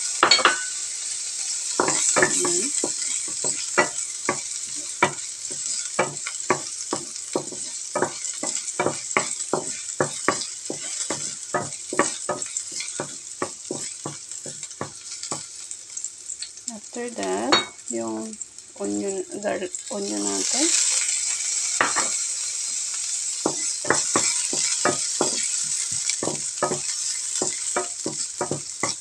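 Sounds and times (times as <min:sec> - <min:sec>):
garlic sizzling in hot oil: 0:00.0 - 0:29.0
wooden spatula scraping a pan: 0:01.8 - 0:15.6, 0:23.4 - 0:29.0.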